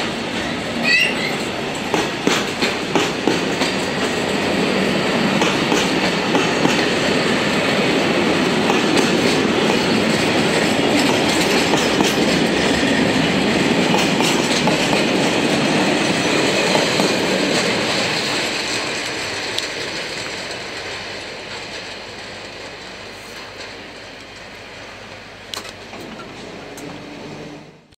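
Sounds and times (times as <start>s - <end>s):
train wheels clacking over rails: 0.0s - 27.9s.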